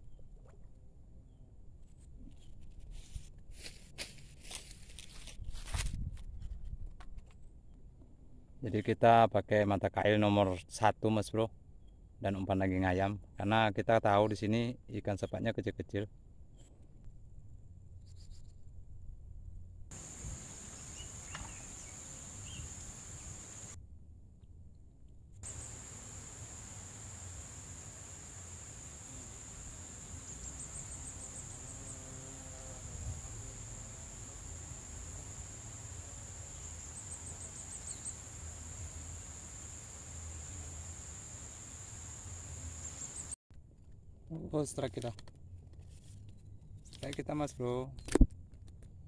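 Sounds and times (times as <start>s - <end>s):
insects trilling: 19.9s - 23.8s, 25.4s - 43.4s.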